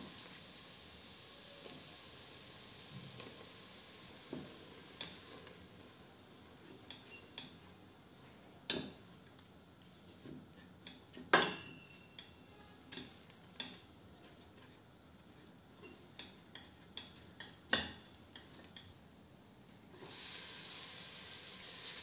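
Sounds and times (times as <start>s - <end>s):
faint sizzle: 0.0s - 22.0s
spatula knocking and scraping pot: 13.0s - 18.9s.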